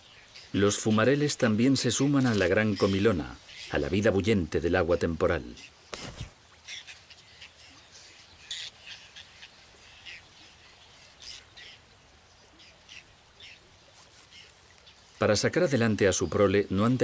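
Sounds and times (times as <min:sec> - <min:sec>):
terns calling: 0:00.0 - 0:17.0.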